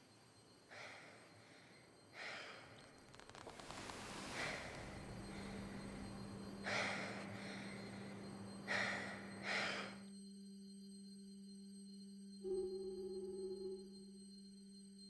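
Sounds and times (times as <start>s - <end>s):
steady low tone: 0.0s - 14.8s
woman breathing heavily: 0.6s - 3.0s, 3.6s - 10.0s.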